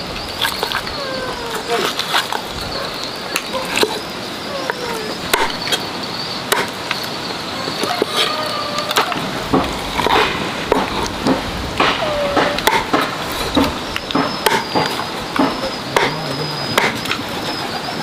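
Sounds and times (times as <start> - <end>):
high insect drone: 0.0 - 18.0
cleaver chopping on board: 9.0 - 16.2, 16.8 - 17.0.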